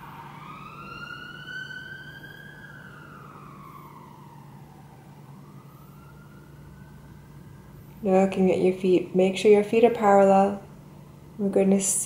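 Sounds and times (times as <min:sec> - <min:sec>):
siren wailing faintly: 0:00.0 - 0:08.2
steady low hum: 0:00.0 - 0:12.0.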